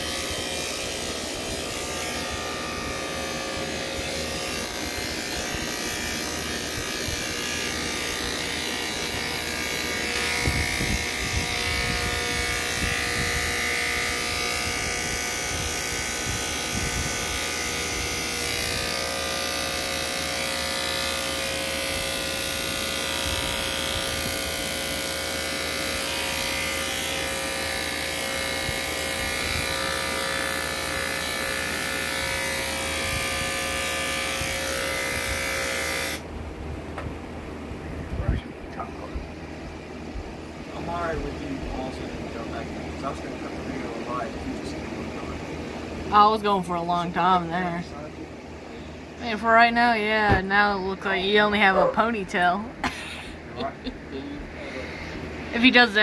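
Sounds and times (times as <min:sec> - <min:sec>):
electric hair clippers buzzing: 0:00.0 - 0:36.3, 0:52.8 - 0:56.0.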